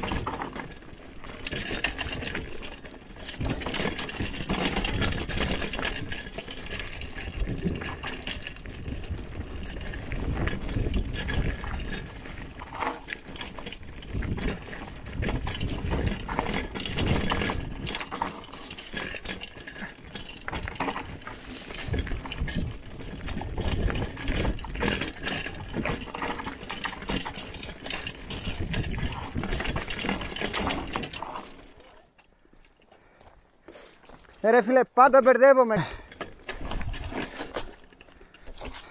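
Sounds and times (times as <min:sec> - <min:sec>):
bike rattling over bumps: 0:00.0 - 0:33.4, 0:34.1 - 0:38.9
bike tyre noise on dirt: 0:00.0 - 0:38.9.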